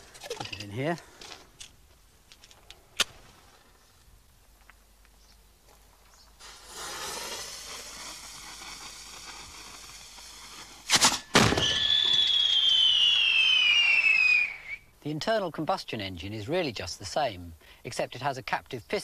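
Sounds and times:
fuse hissing: 6.4 - 11.0
firework mortar bangs: 6.4 - 14.6
high falling whistle: 11.4 - 14.9.

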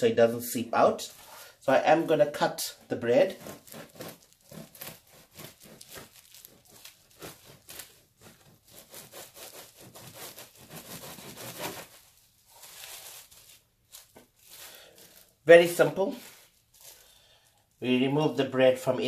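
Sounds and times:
knife sawing through bread crust: 3.3 - 12.0.

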